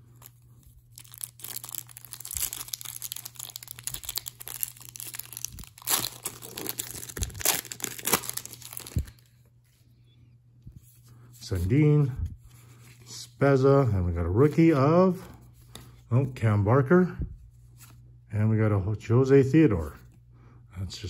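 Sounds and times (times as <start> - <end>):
plastic wrapper crinkling and tearing: 0.0 - 9.3.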